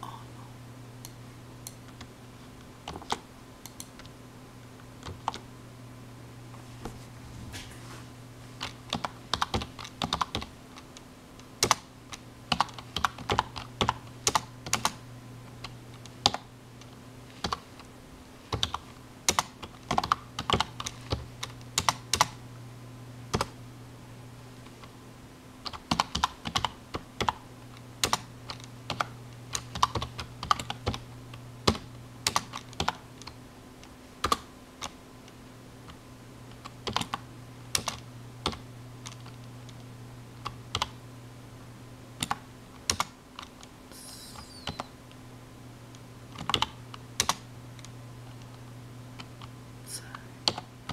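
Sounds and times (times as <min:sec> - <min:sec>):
steady low hum: 0:00.0 - 0:50.9
computer keyboard typing: 0:02.9 - 0:04.1, 0:05.0 - 0:05.4, 0:08.6 - 0:11.0, 0:11.6 - 0:15.0, 0:15.6 - 0:16.5, 0:17.4 - 0:17.7, 0:18.5 - 0:22.4, 0:23.3 - 0:23.6, 0:25.6 - 0:27.4, 0:28.0 - 0:31.0, 0:31.6 - 0:33.4, 0:34.2 - 0:35.0, 0:36.5 - 0:39.4, 0:40.4 - 0:41.0, 0:42.2 - 0:43.6, 0:46.3 - 0:47.4, 0:50.4 - 0:50.9.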